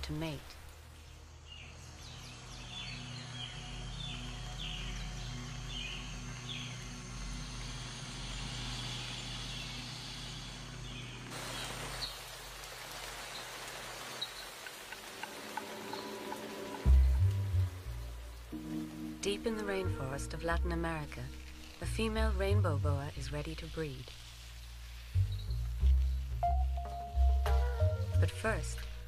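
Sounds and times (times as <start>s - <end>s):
rain-like hiss: 0.0s - 29.0s
low steady drone: 0.8s - 11.3s.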